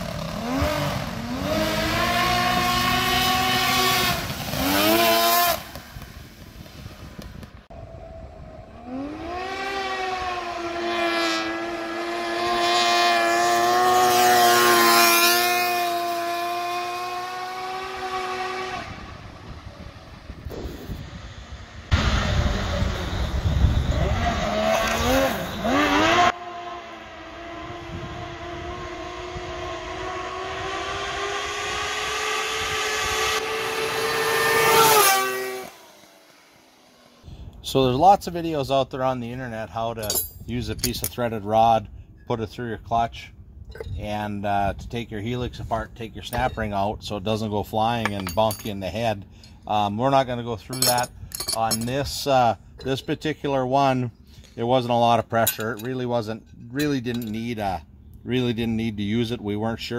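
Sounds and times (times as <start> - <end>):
kart engine accelerating: 0.0 - 7.2, 7.8 - 20.8, 21.9 - 37.2.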